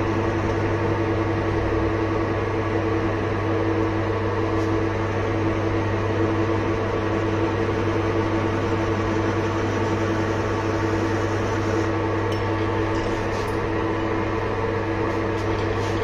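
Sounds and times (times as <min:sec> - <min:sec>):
metal lathe humming: 0:00.0 - 0:16.0.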